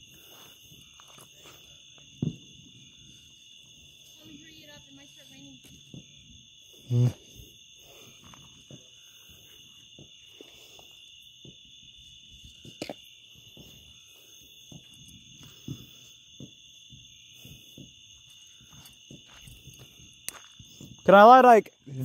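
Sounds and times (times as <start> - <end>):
night insects trilling: 0.0 - 22.0
steps on gravel: 17.6 - 21.0.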